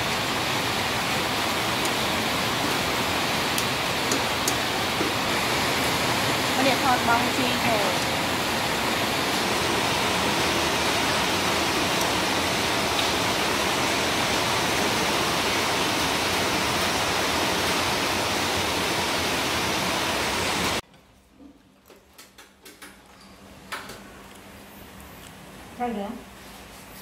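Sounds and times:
loud rushing hiss: 0.0s - 20.8s.

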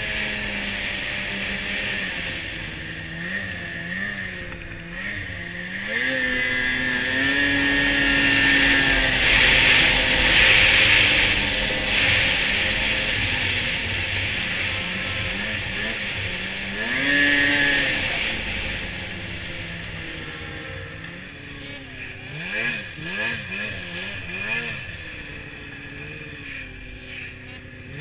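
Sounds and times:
snowmobile engine running: 0.0s - 28.0s.

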